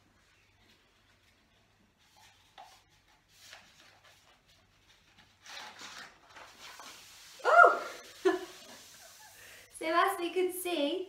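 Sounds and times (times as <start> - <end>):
paper rubbing and tapping: 0.6 - 7.4
cola fizzing and erupting: 6.8 - 9.7.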